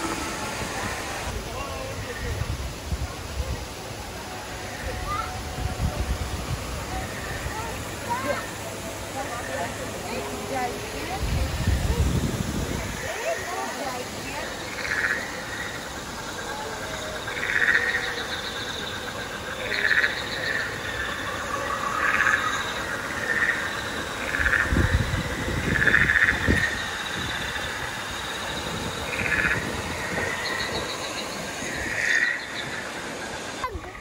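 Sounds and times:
frogs calling: 0:06.2 - 0:34.0.

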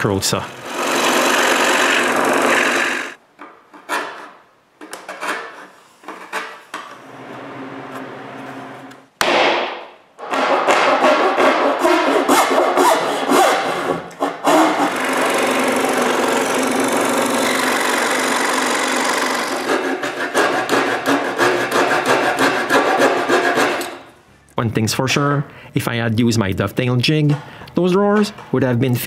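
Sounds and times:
scroll saw cutting wood: 0:00.0 - 0:03.2, 0:10.4 - 0:24.0
rhythmic hand saw strokes: 0:00.5 - 0:03.2, 0:10.4 - 0:24.0
sharp knock: 0:09.2 - 0:10.9.

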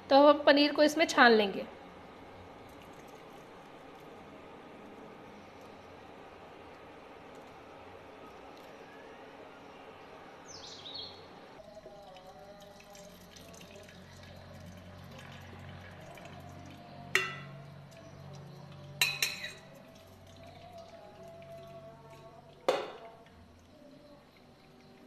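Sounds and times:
liquid pouring and dripping into cloth: 0:02.6 - 0:04.1, 0:11.6 - 0:16.9, 0:19.8 - 0:23.3
steel spoon clinking against bowl: 0:17.2 - 0:17.5, 0:19.0 - 0:19.7.

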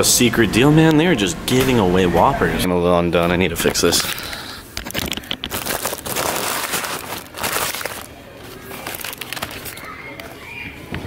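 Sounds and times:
paper wrapper crinkling: 0:04.1 - 0:10.3.

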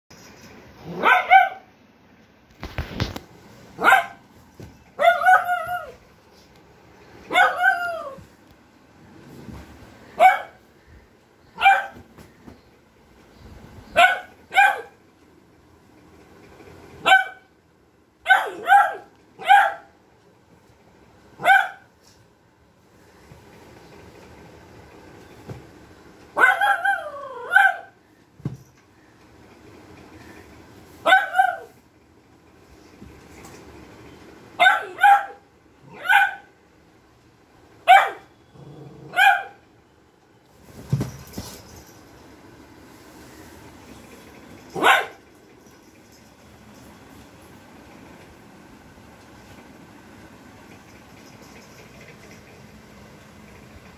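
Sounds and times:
puppy barking: 0:00.8 - 0:01.7, 0:03.8 - 0:04.2, 0:05.0 - 0:06.0, 0:07.3 - 0:08.2, 0:10.2 - 0:10.6, 0:11.6 - 0:12.0, 0:14.0 - 0:15.0, 0:17.0 - 0:17.5, 0:18.2 - 0:20.0, 0:21.4 - 0:21.9, 0:26.4 - 0:28.0, 0:31.0 - 0:31.8, 0:34.6 - 0:36.5, 0:37.8 - 0:38.3, 0:39.1 - 0:39.6, 0:44.8 - 0:45.2.

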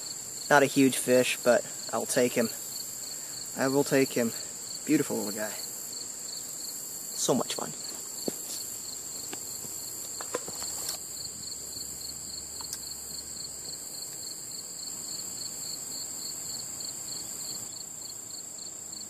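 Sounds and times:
crickets trilling: 0:00.0 - 0:19.0
pulsing cricket chirp: 0:00.0 - 0:19.0.

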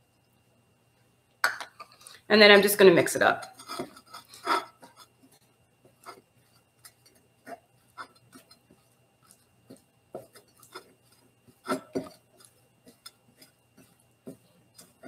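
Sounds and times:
spatula scraping glass bowl: 0:03.4 - 0:05.2, 0:06.0 - 0:15.0.

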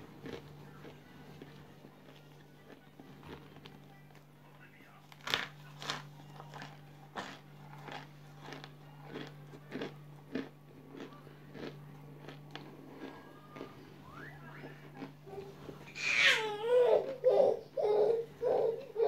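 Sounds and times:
crunchy chewing: 0:00.0 - 0:04.0, 0:05.0 - 0:16.0
steady low hum: 0:00.0 - 0:19.0.

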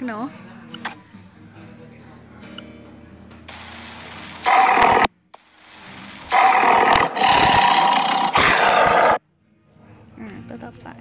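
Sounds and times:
tiger roar: 0:04.4 - 0:05.1, 0:06.3 - 0:09.2.

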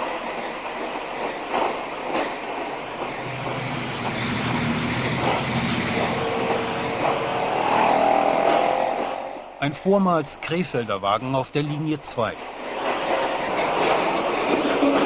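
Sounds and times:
tram rolling rumble: 0:00.0 - 0:15.0.

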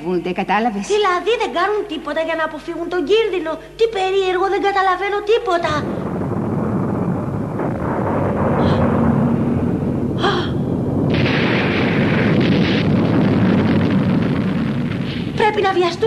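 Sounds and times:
deep rumble: 0:05.6 - 0:16.0.

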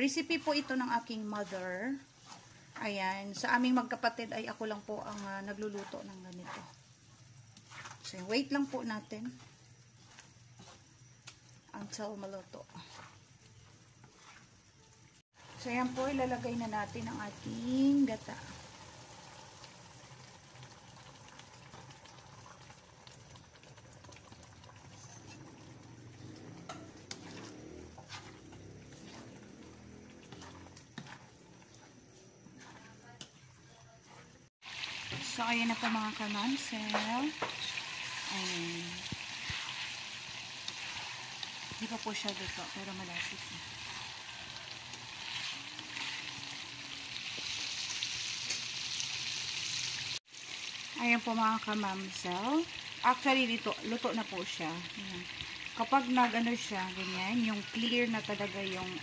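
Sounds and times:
wooden spatula stirring: 0:00.0 - 0:15.0, 0:21.3 - 0:46.6
bubbling and sizzling: 0:00.0 - 0:59.0.

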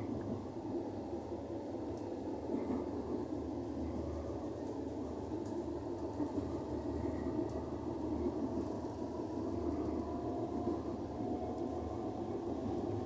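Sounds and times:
train rumbling on track: 0:00.0 - 0:13.0
faint clicks: 0:01.9 - 0:02.7, 0:05.4 - 0:06.4.

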